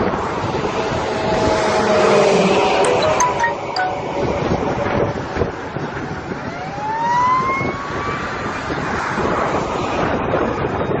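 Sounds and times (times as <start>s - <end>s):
wind buffeting microphone: 0.0s - 2.8s, 4.1s - 11.0s
rising tone: 2.7s - 4.6s.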